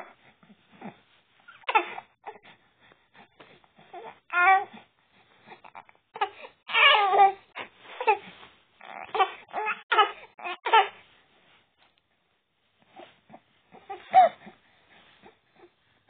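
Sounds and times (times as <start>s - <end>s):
baby babbling: 3.9s - 4.7s, 5.7s - 7.4s, 8.8s - 10.9s.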